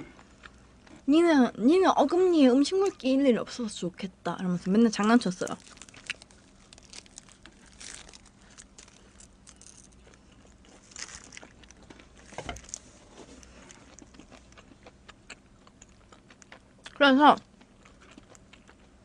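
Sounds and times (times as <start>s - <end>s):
plastic glove crinkling: 4.9s - 14.5s
biting and chewing pizza: 5.4s - 19.0s.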